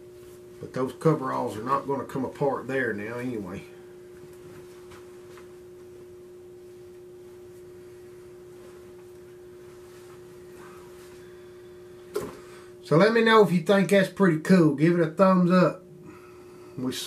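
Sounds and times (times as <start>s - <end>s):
steady hum: 0.0s - 17.0s
soft cloth handling sounds: 6.7s - 11.4s.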